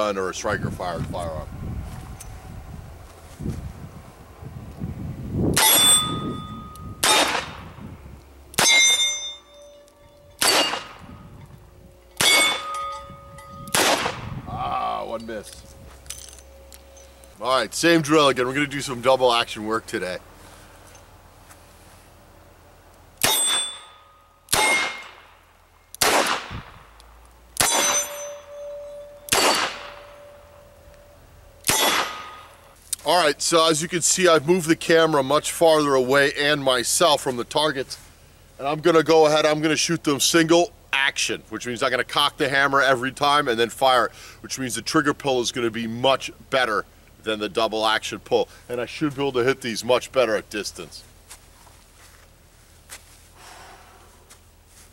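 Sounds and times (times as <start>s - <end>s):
steel plate target clanging: 5.6s - 7.5s, 8.6s - 11.2s, 12.0s - 14.2s, 23.2s - 25.3s, 27.6s - 32.7s
revolver shots: 7.0s - 7.7s, 10.4s - 11.2s, 13.7s - 14.3s, 27.6s - 30.4s, 31.6s - 32.6s.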